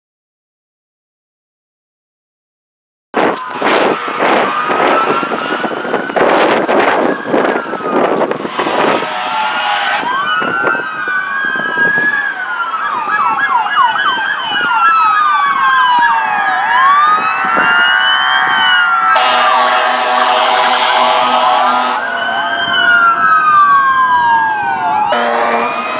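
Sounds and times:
fire truck air horn: 0:03.2 - 0:10.8, 0:19.1 - 0:22.2, 0:25.0 - 0:25.9
emergency sirens wailing and yelping: 0:03.2 - 0:25.9.

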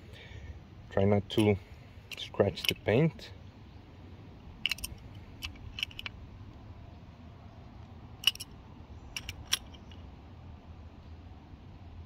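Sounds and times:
wrench clicking against metal: 0:04.6 - 0:06.1, 0:08.2 - 0:08.5, 0:09.2 - 0:10.0.

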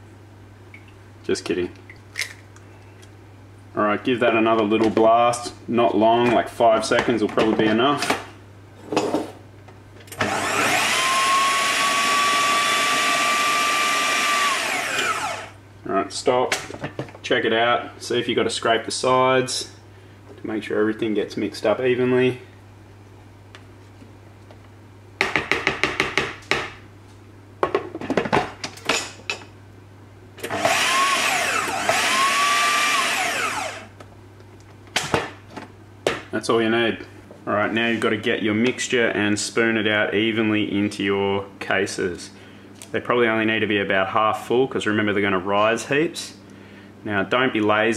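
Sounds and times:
food processor motor whining: 0:10.1 - 0:15.6, 0:30.4 - 0:34.0.

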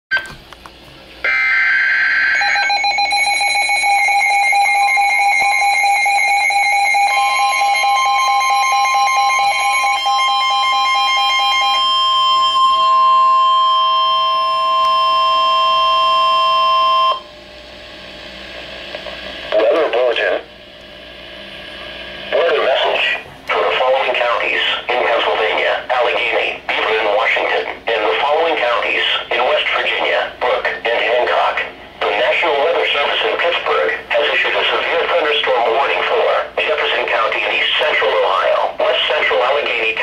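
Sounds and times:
pulsing alarm tone: 0:01.2 - 0:17.4
steady warning tone: 0:01.2 - 0:40.0
radio voice speaking: 0:19.5 - 0:20.5, 0:22.3 - 0:40.0.

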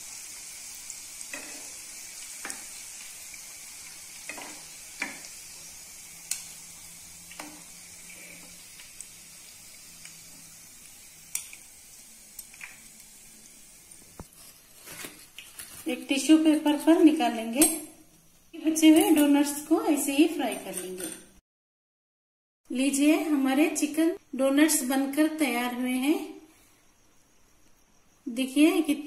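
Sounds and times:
food sizzling in hot oil: 0:00.0 - 0:21.1.

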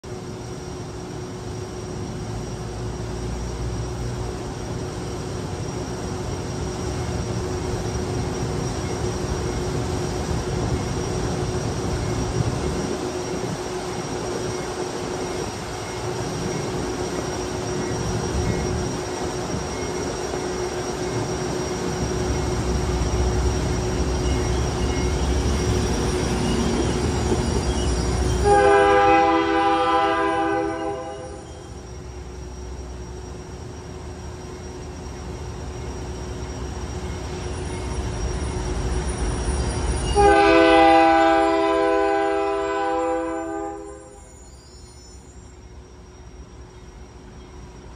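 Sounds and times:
locomotive air horn: 0:28.4 - 0:31.4, 0:40.2 - 0:44.2.

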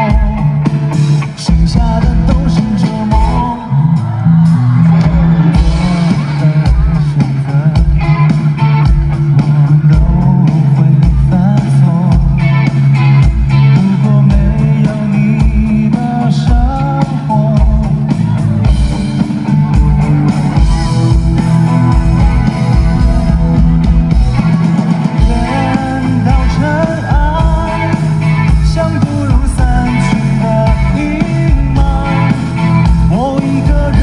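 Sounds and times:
electric guitar: 0:00.0 - 0:34.0
live rock band playing: 0:00.0 - 0:34.0.

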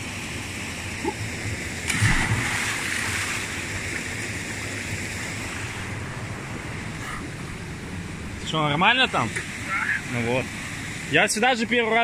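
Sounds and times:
heavy splash into water: 0:01.9 - 0:03.5.

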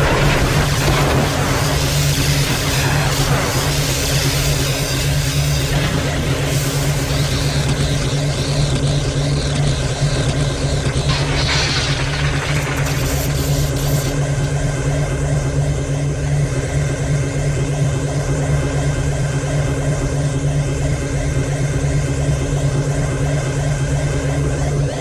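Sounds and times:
low electric drone: 0:00.0 - 0:25.0
hiss: 0:00.6 - 0:05.8.

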